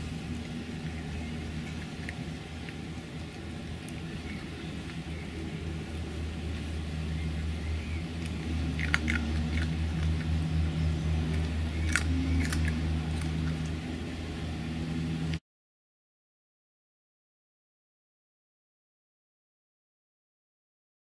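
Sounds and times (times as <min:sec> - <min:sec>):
fox chewing dry food: 0:00.0 - 0:14.3
steady low hum: 0:00.0 - 0:15.4.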